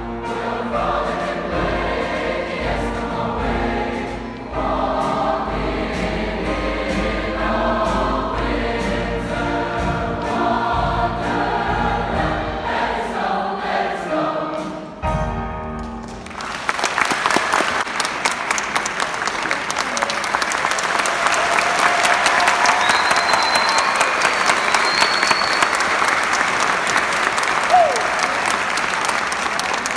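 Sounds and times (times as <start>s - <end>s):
large choir singing: 0.0s - 15.1s
audience clapping: 16.0s - 29.9s.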